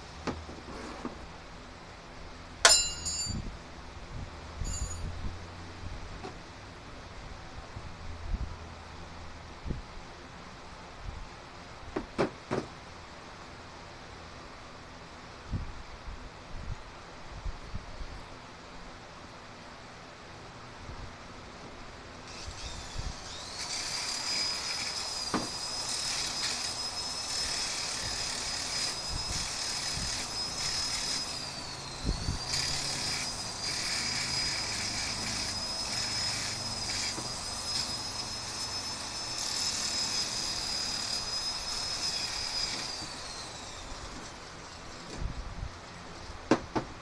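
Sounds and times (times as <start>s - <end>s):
angle grinder grinding metal: 22.3s - 44.9s.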